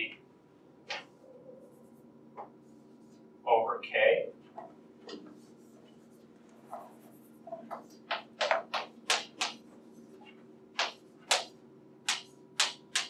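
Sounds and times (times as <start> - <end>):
steady low hum: 0.0 - 13.0
chalk writing on blackboard: 5.4 - 11.5.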